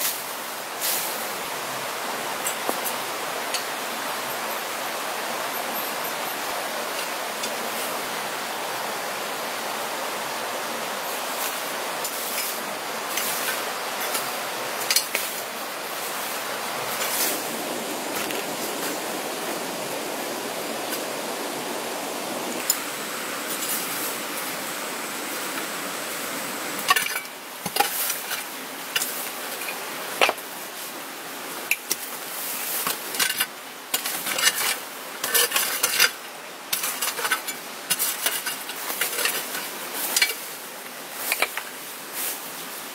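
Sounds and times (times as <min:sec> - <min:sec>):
flowing water: 0:00.0 - 0:42.9
hoe digging dry soil: 0:32.8 - 0:40.4.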